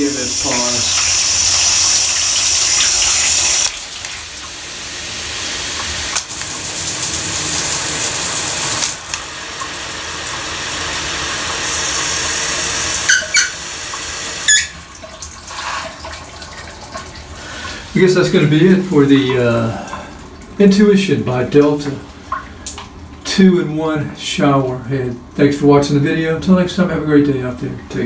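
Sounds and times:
shower spraying onto tile: 0.0 - 14.8, 15.5 - 16.1.

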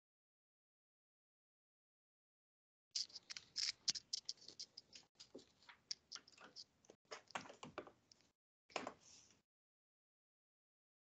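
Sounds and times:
small clicks and scratches: 3.0 - 9.3.

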